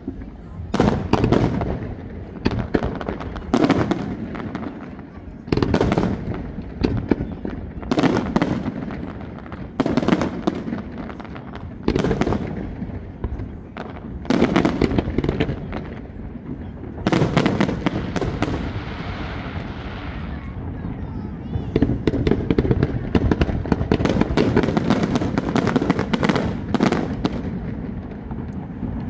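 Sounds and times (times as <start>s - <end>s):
fireworks booming: 0.0s - 29.0s
fireworks crackling hiss: 0.0s - 29.0s.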